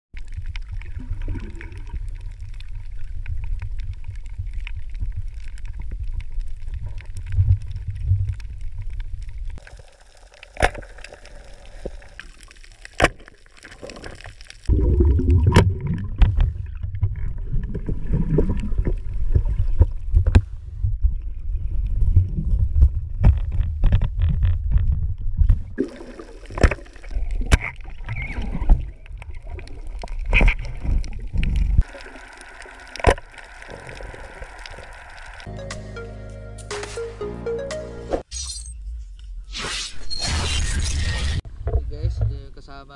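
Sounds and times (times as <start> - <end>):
underwater rumble of moving water: 0.2 - 35.5, 41.4 - 42.9
underwater clicks and knocks: 15.1 - 17.8, 22.4 - 25.8, 41.5 - 42.4.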